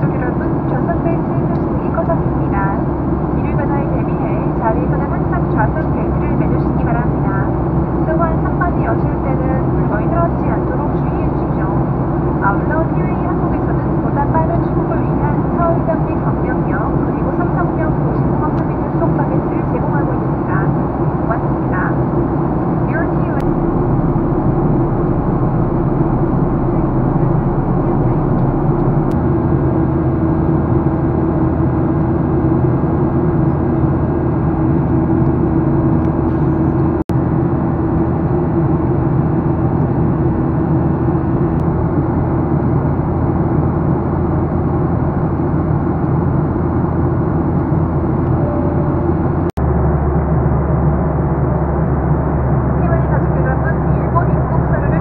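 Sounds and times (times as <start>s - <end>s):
jet engines drone in cabin: 0.0s - 55.0s
low hum: 0.0s - 55.0s
rushing air: 22.0s - 52.8s.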